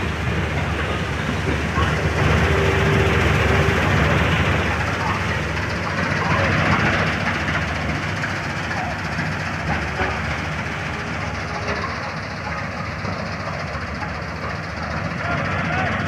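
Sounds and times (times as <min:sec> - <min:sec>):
combine harvester droning: 0:00.0 - 0:16.0.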